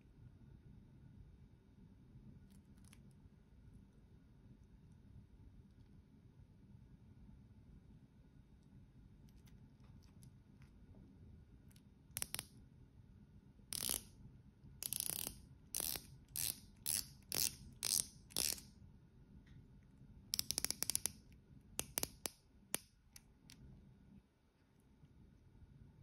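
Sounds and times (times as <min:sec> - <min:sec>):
watch bezel ratcheting clicks: 0:12.2 - 0:12.5, 0:13.7 - 0:14.1, 0:14.8 - 0:18.6, 0:20.4 - 0:21.2.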